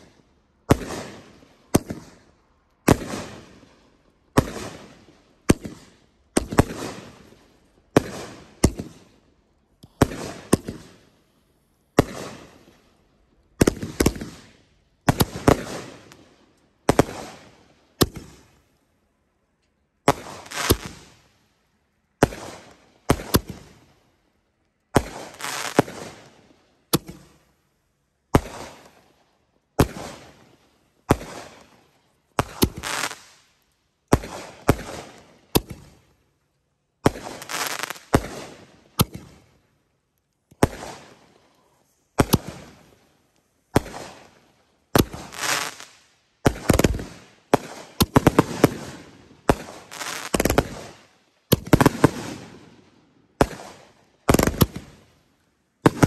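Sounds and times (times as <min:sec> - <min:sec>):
fireworks banging: 0:32.4 - 0:33.3, 0:37.0 - 0:39.4, 0:43.7 - 0:52.6.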